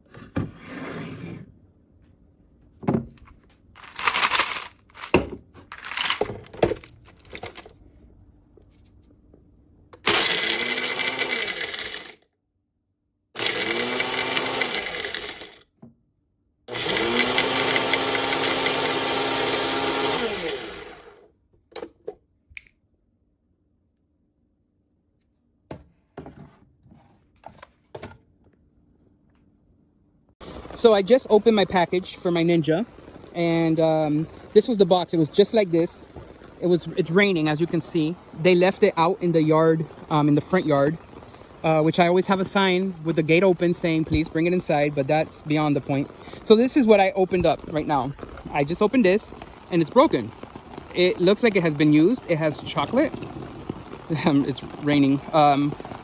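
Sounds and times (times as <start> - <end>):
blender motor running: 10.0 - 12.2, 13.4 - 15.6, 16.7 - 21.3.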